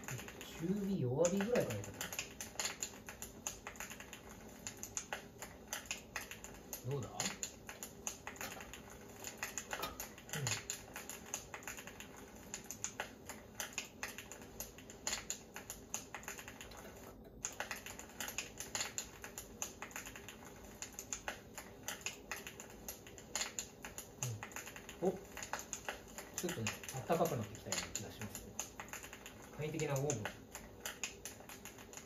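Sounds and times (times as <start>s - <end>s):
wood fire crackling and popping: 0.0s - 32.0s.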